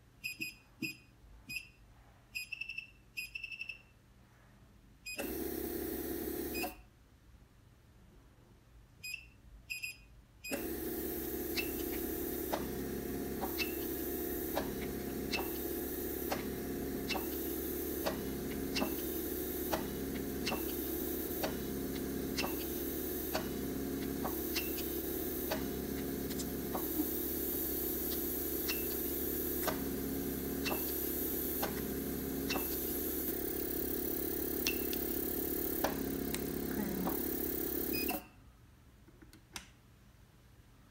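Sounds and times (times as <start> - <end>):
machine running noise: 5.2 - 6.7, 10.5 - 38.3
touchscreen beep: 37.1 - 38.2.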